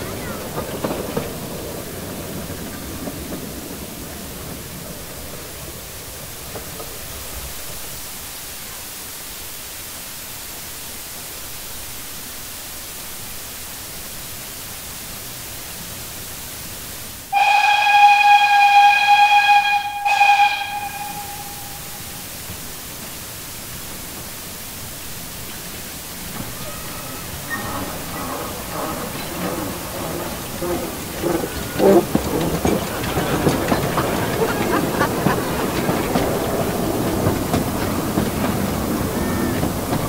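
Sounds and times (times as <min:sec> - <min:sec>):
steam hiss: 0:00.0 - 0:40.0
shrill steam whistle: 0:17.3 - 0:22.3.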